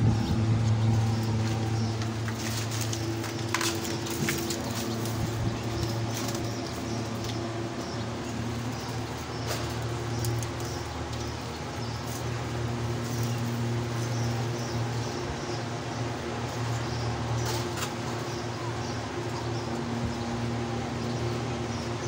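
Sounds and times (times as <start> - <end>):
leaves rustling: 0.0 - 19.3
steady low hum: 0.0 - 22.0.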